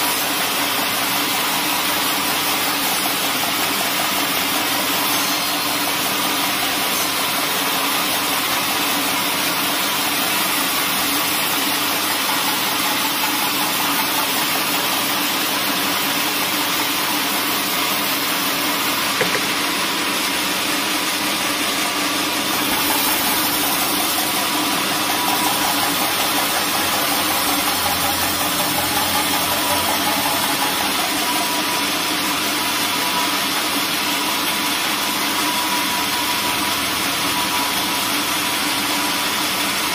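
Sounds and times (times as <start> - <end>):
band saw cutting log: 0.0 - 39.9
brief knock: 19.2 - 19.7.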